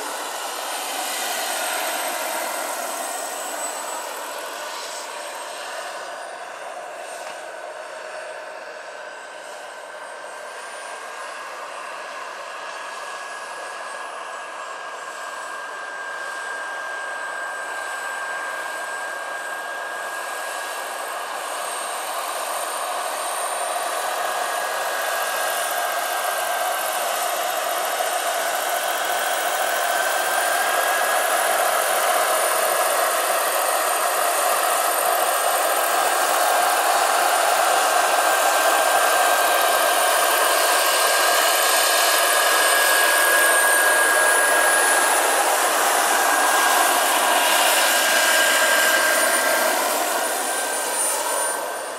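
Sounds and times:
rotor blades rushing: 0.0 - 6.4, 20.2 - 51.9
model helicopter turbine whine: 0.0 - 51.9.

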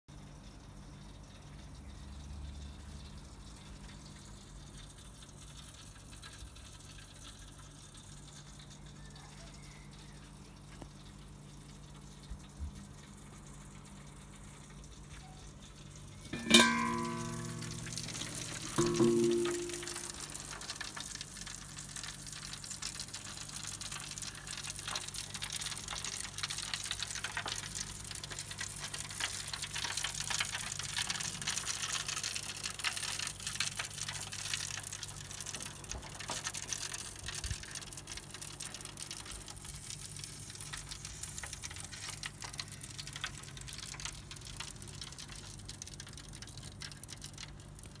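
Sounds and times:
fat sizzling on hot charcoal: 0.1 - 48.0
low hum: 16.2 - 20.6.

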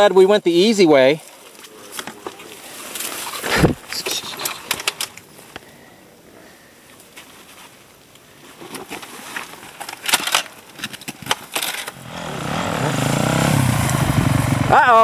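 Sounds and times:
dirt bike engine revving: 11.9 - 15.0.

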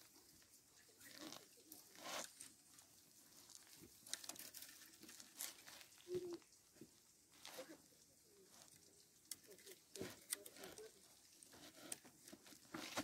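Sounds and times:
cane strips rustling and clicking: 0.0 - 13.0.

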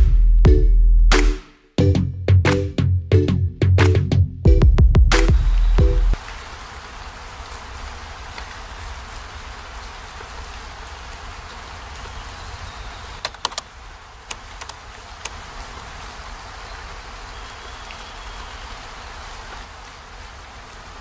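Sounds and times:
heavy rain hissing: 5.2 - 21.0
sharp drip clicks: 13.2 - 15.4.

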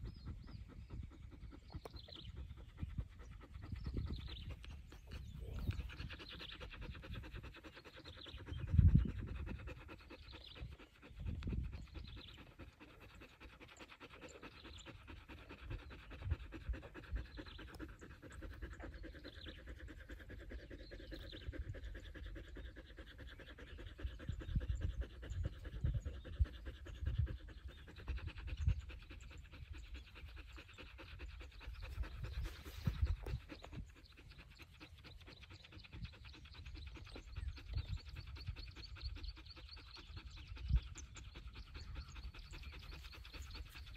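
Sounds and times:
dog panting: 0.0 - 43.9.

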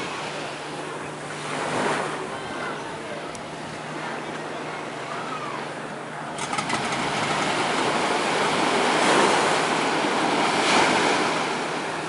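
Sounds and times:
small waves washing on beach: 4.8 - 12.0.

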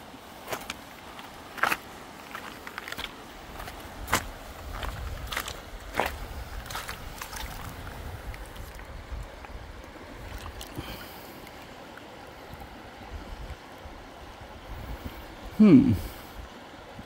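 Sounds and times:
small water splash: 0.0 - 12.2
river flowing over stones: 0.0 - 17.0
wind rumbling on microphone: 3.4 - 11.0, 12.4 - 17.0.

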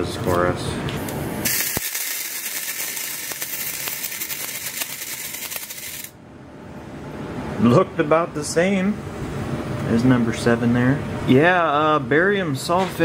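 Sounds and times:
burning composition hissing: 1.4 - 6.1
sharp ignition click: 1.5 - 6.1.

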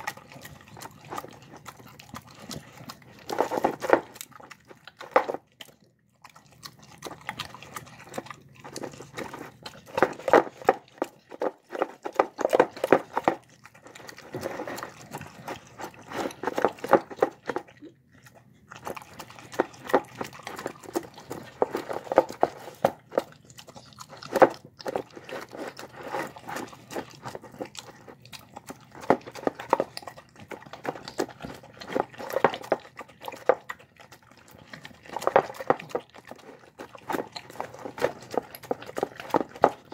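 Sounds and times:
dog chewing wet food: 0.0 - 39.9.

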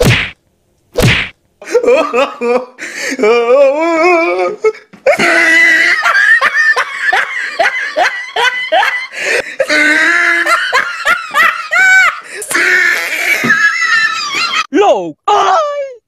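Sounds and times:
people laughing hard: 1.6 - 2.8, 5.1 - 14.7.

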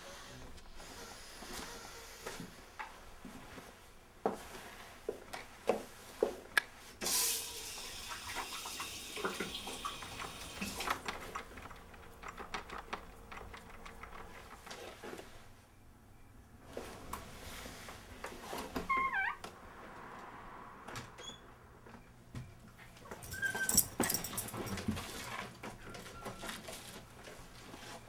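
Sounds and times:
running water: 7.5 - 12.3.

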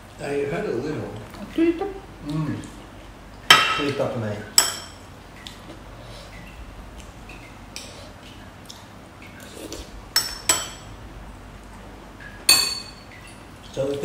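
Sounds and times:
metal spoon clinking on dish: 10.2 - 10.9, 12.5 - 13.0.

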